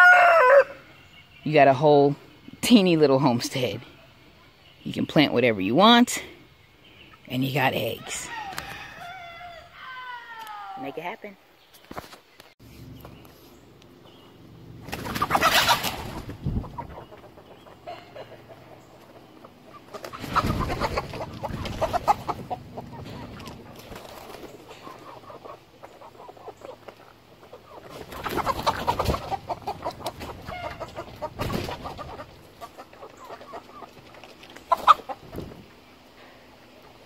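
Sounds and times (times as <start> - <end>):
hens clucking: 12.9 - 37.0.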